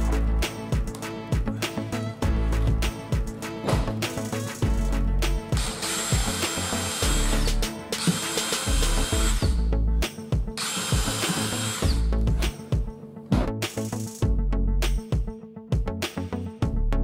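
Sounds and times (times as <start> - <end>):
cordless drill motor whine: 5.6 - 9.5, 10.6 - 12.1.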